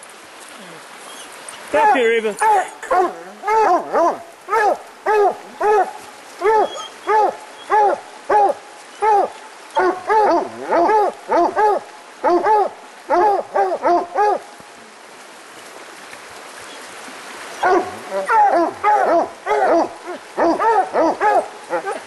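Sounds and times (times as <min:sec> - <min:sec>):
hounds barking: 0:02.9 - 0:14.5, 0:17.6 - 0:22.0.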